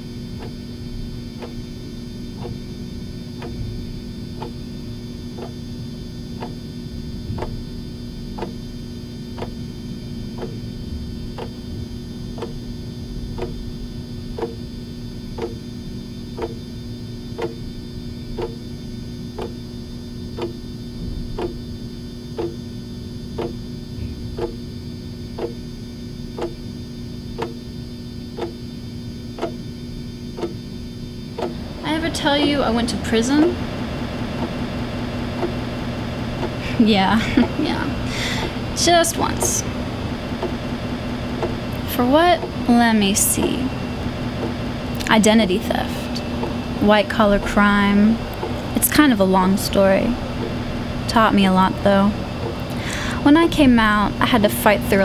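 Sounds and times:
constant low hum: 0:00.0 - 0:55.0
clock ticking: 0:03.4 - 0:03.6, 0:04.4 - 0:04.6, 0:05.4 - 0:05.6, 0:06.4 - 0:06.6, 0:07.4 - 0:07.6, 0:08.4 - 0:08.6, 0:09.4 - 0:09.6, 0:10.4 - 0:10.6, 0:11.4 - 0:11.6, 0:12.4 - 0:12.6, 0:13.4 - 0:13.6, 0:14.4 - 0:14.6, 0:15.4 - 0:15.6, 0:16.4 - 0:16.6, 0:17.4 - 0:17.6, 0:18.4 - 0:18.6, 0:19.4 - 0:19.6, 0:21.4 - 0:21.6, 0:22.4 - 0:22.6, 0:23.4 - 0:23.6, 0:24.4 - 0:24.6, 0:25.4 - 0:25.6, 0:26.4 - 0:26.6, 0:27.4 - 0:27.6, 0:28.4 - 0:28.6, 0:29.4 - 0:29.6, 0:30.4 - 0:30.6, 0:31.4 - 0:32.7, 0:35.4 - 0:35.6, 0:36.4 - 0:36.6, 0:40.4 - 0:40.6, 0:41.4 - 0:43.4, 0:44.4 - 0:45.1.

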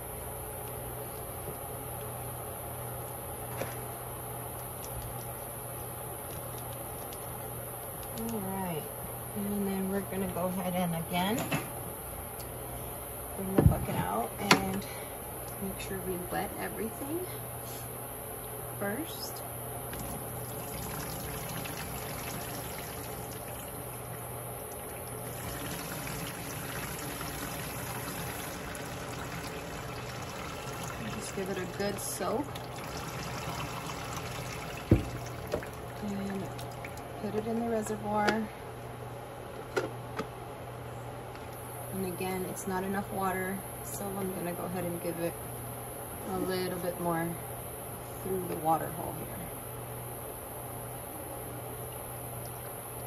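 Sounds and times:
background hum and hiss: 0:00.0 - 0:53.0
faint clicks and rustles of bark: 0:04.5 - 0:08.4
water trickling into bucket: 0:19.8 - 0:38.0, 0:51.5 - 0:53.0
water pouring from watering can: 0:19.9 - 0:37.5.

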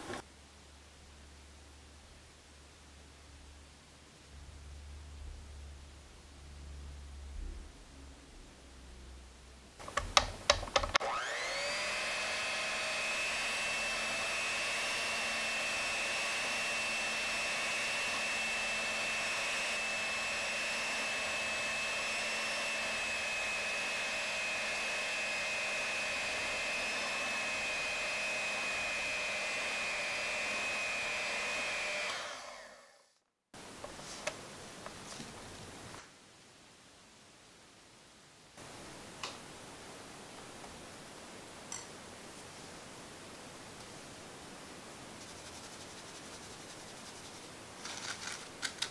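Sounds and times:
hand mixer motor whine: 0:11.0 - 0:33.2.

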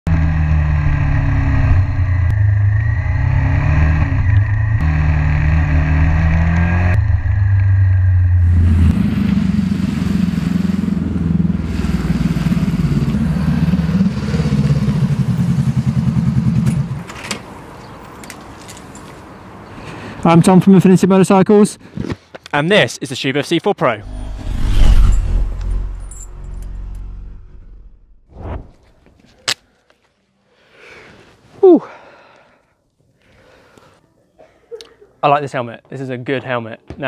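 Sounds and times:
wind rushing: 0:24.0 - 0:28.8.

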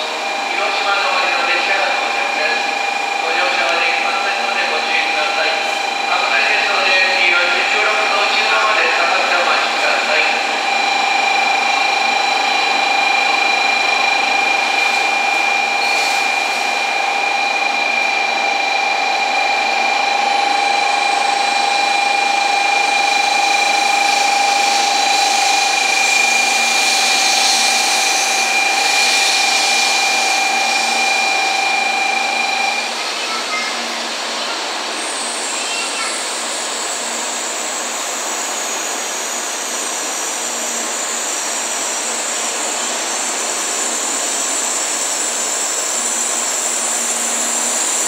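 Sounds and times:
station hiss: 0:00.0 - 0:48.0
steady electronic buzzer: 0:09.6 - 0:33.1.

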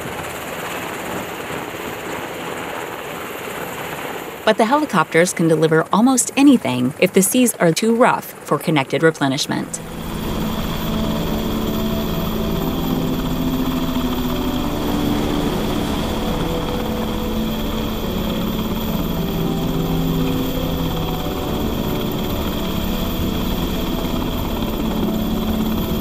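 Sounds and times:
wind: 0:00.0 - 0:04.5
helicopter rotor and engine: 0:00.0 - 0:26.0.

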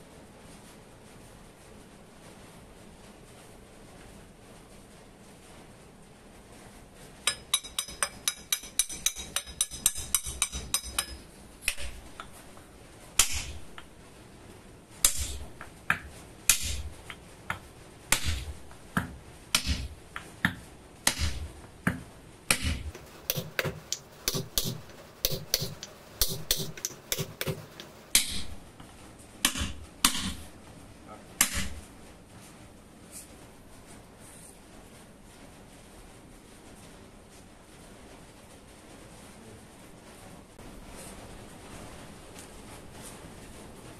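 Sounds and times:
hammer tapping on metal: 0:07.3 - 0:12.4, 0:15.0 - 0:28.5
hammer blows on wooden block: 0:20.5 - 0:28.5.

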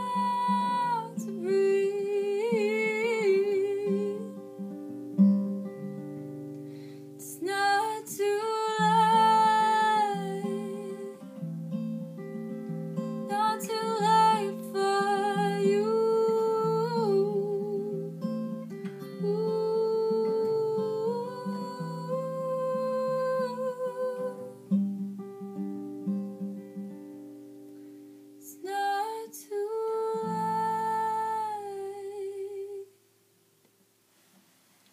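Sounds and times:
woman singing with vibrato: 0:00.0 - 0:04.5, 0:07.2 - 0:11.4, 0:13.3 - 0:18.2, 0:19.2 - 0:24.7, 0:28.4 - 0:33.0
acoustic guitar: 0:00.0 - 0:34.9.

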